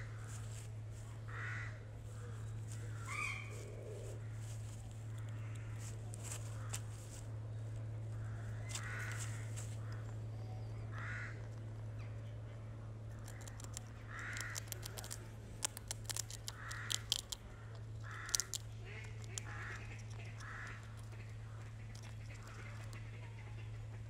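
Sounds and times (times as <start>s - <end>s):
steady low hum: 0.0s - 24.0s
bird calls: 1.1s - 24.0s
squirrel gnawing and cracking nut: 10.9s - 23.2s.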